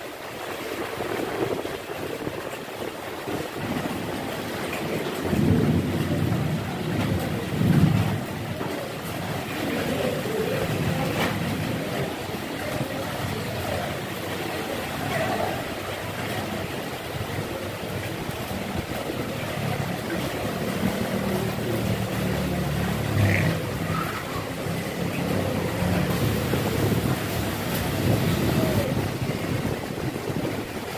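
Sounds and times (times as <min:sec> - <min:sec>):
steady rain: 0:00.0 - 0:30.9
vehicle engine rumbling past: 0:18.9 - 0:29.5.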